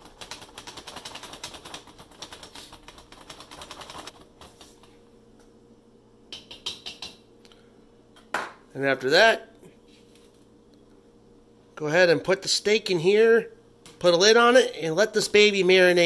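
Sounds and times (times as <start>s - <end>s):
whisk clicking in plastic bowl: 0.0s - 4.1s.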